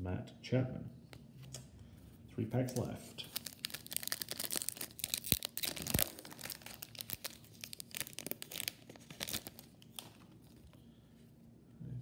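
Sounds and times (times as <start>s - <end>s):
wrapper tearing and crinkling: 3.2s - 10.6s.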